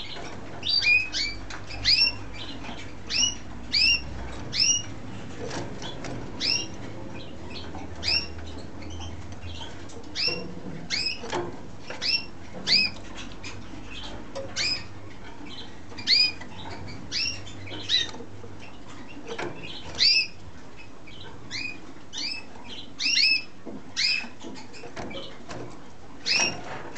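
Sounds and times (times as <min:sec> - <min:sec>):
canary chirping: 0:00.0 - 0:26.9.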